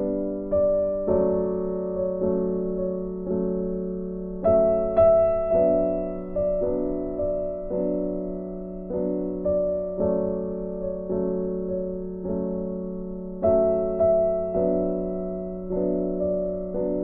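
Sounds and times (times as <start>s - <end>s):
soft piano playing slow chords: 0.0s - 17.0s.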